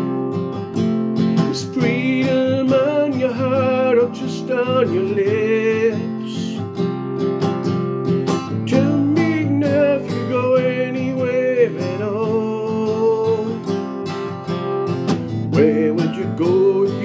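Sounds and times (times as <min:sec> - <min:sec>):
man singing: 0:00.0 - 0:00.6, 0:01.4 - 0:06.8, 0:08.5 - 0:13.8, 0:15.4 - 0:17.0
acoustic guitar strumming: 0:00.0 - 0:17.0.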